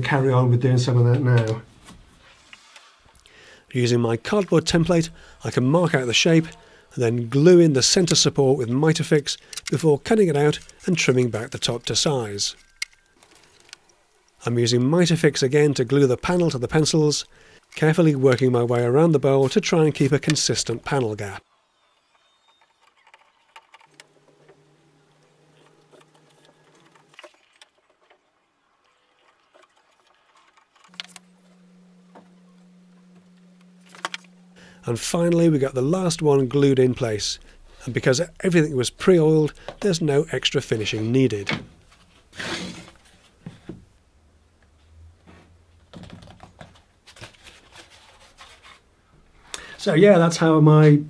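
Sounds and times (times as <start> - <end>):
low steady hum: 3.1 - 21.4, 30.8 - 45.9.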